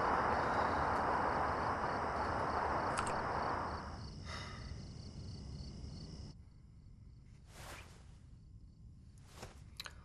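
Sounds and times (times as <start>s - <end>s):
steady hiss: 0.0s - 6.2s
insects chirping: 0.0s - 9.2s.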